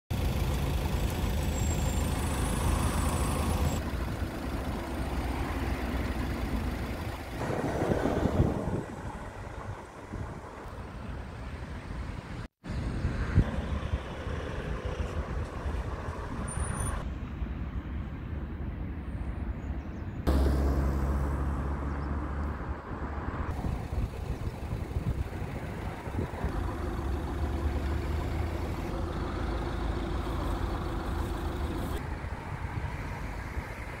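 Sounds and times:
passing vehicle engines: 0.1 - 34.0
loud vehicle passing: 1.7 - 11.6, 20.3 - 34.0.

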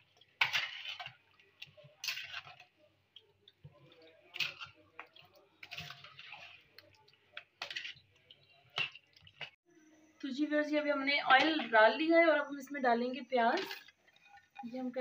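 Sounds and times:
spoon squelching in marinade: 0.0 - 9.6.

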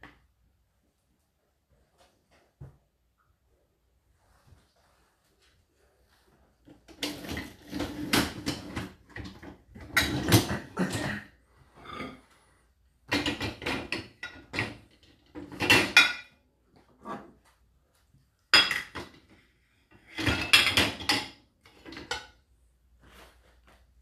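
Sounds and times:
dishes clattering in dishwasher racks: 6.9 - 12.2, 13.1 - 16.4, 18.6 - 19.3, 19.9 - 22.4
dishwasher racks rattling: 7.0 - 11.2, 13.1 - 16.2, 20.1 - 22.2.

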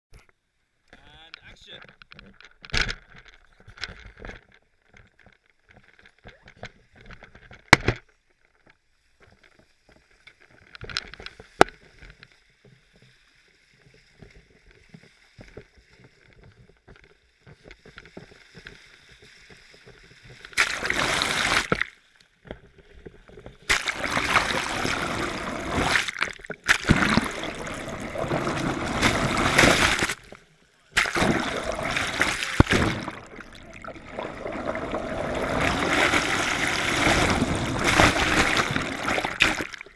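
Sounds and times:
water rushing and gurgling: 20.5 - 21.8, 23.7 - 39.9.

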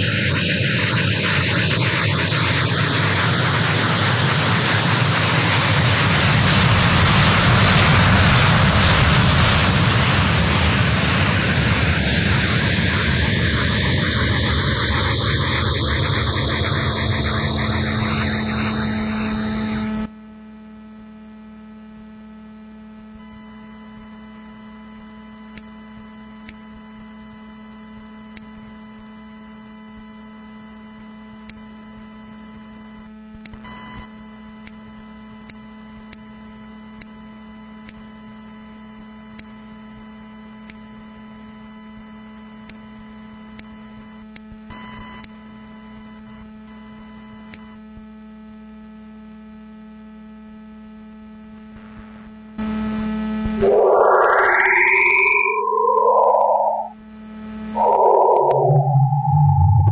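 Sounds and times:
electrical hum of held tones: 0.0 - 59.9
synthesized sound: 53.5 - 57.0, 57.6 - 59.9.

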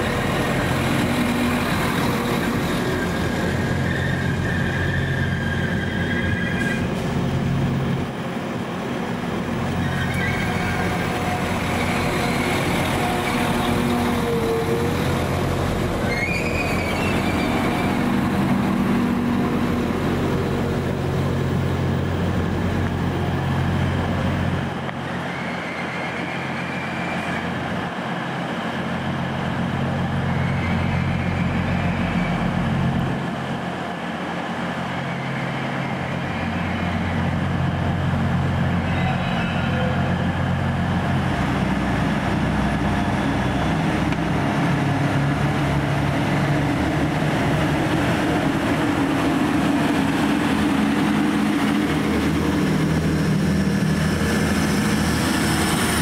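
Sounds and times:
train diesel engines running: 0.0 - 56.0
high squeals and whines: 9.7 - 20.9.

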